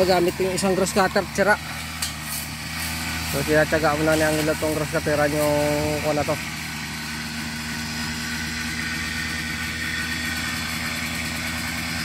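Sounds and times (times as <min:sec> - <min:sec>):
brush cutter engine running: 0:00.0 - 0:12.0.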